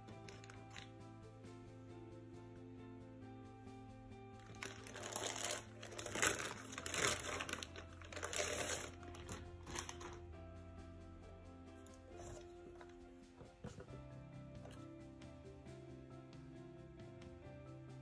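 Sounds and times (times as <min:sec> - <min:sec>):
soft background music: 0:00.0 - 0:18.0
plastic bag crinkling: 0:04.4 - 0:10.2.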